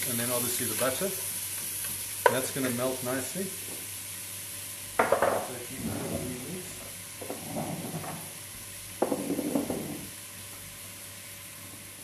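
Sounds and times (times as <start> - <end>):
onions sizzling in a pot: 0.0 - 12.0.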